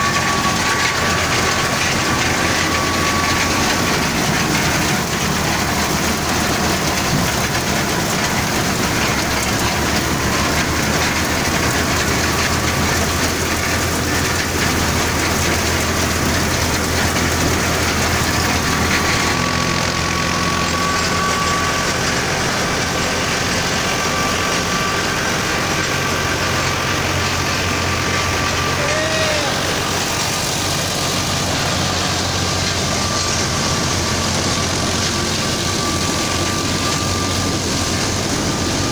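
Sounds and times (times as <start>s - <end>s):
tractor engine drone: 0.0s - 38.9s.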